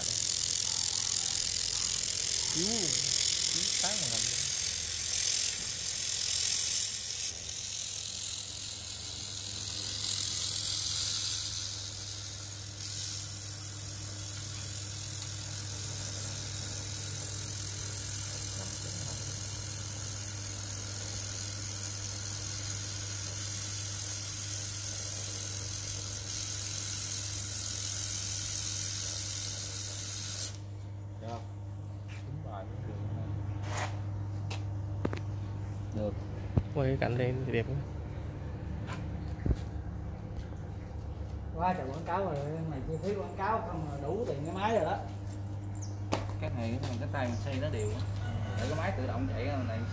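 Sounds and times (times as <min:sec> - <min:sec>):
laser welder hissing: 0:00.0 - 0:30.7.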